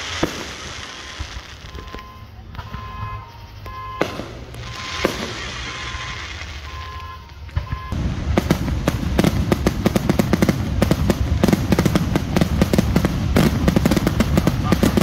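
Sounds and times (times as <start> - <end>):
fireworks bursting: 0.0 - 15.0.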